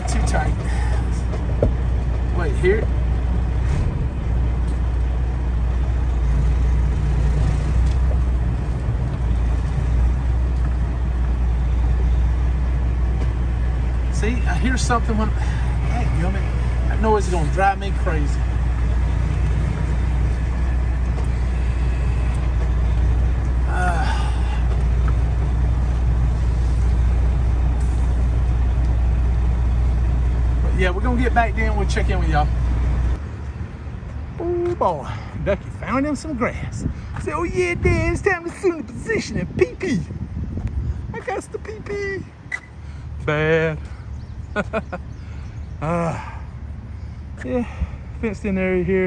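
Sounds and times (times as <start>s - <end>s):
diesel truck engine droning: 0.0s - 34.8s.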